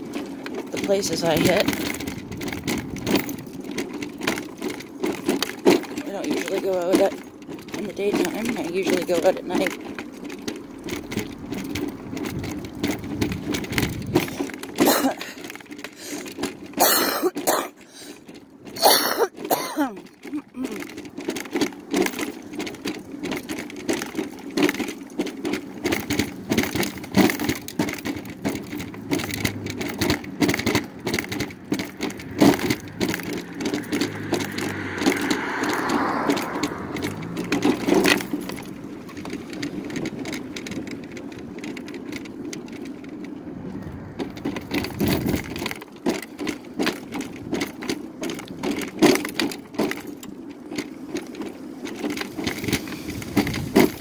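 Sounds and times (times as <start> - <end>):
mobility scooter humming: 0.0 - 54.0
scooter body rattling: 0.0 - 54.0.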